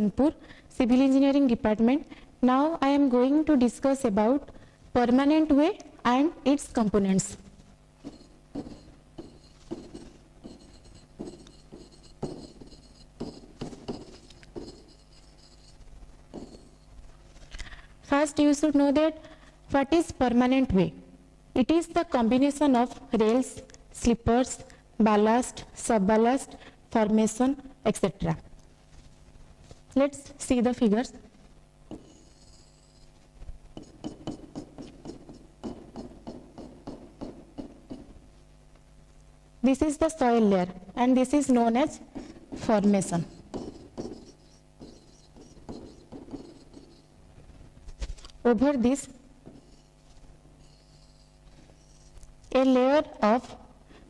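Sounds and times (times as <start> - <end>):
faint steady hum: 0.0 - 54.0
stylus tapping on glass screen: 8.0 - 16.8, 33.8 - 38.2, 43.3 - 47.0.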